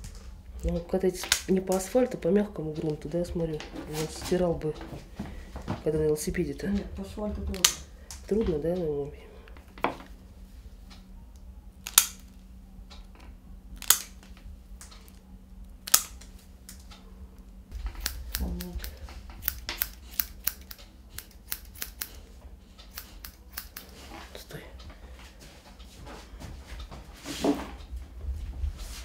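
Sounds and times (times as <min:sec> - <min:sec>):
nail clippers clicking: 0:01.2 - 0:01.9, 0:07.5 - 0:08.3, 0:11.8 - 0:12.4, 0:13.8 - 0:14.2, 0:15.8 - 0:16.8, 0:17.8 - 0:22.2, 0:22.8 - 0:23.9.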